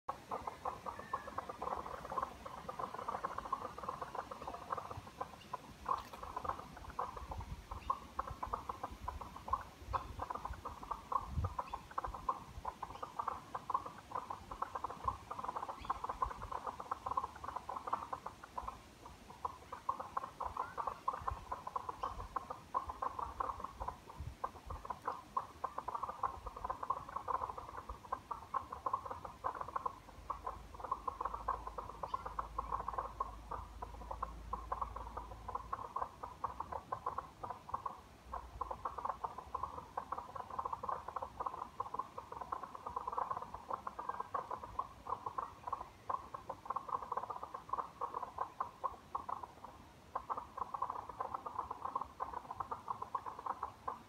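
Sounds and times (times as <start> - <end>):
chorus of frogs calling: 0.1 - 54.0.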